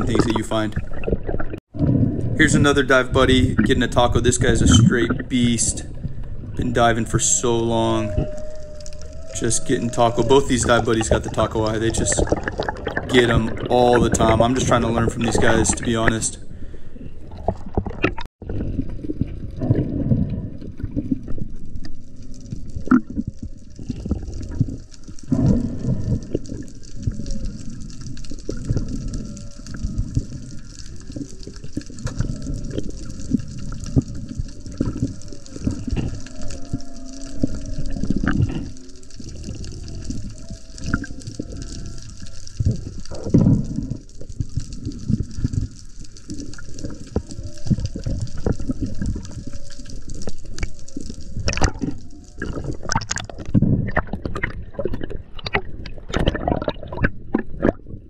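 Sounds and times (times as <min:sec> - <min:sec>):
underwater seawater rumble: 0:00.0 - 0:58.0
water knocks and splashes: 0:10.5 - 0:16.2, 0:17.3 - 0:49.5, 0:50.1 - 0:58.0.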